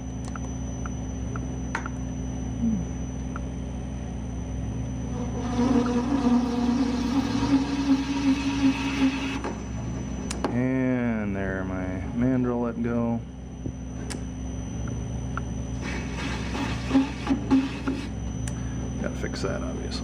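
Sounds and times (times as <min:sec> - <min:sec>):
metal lathe running: 0:04.7 - 0:10.3, 0:15.7 - 0:18.3
harsh cutting chatter with buzz: 0:05.0 - 0:09.5.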